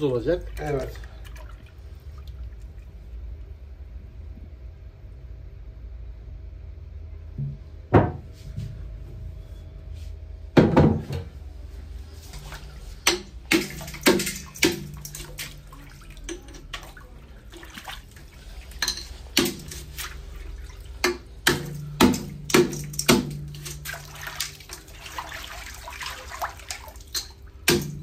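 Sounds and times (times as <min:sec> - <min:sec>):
water splashing in metal bowl: 0:00.0 - 0:03.4, 0:12.4 - 0:28.0.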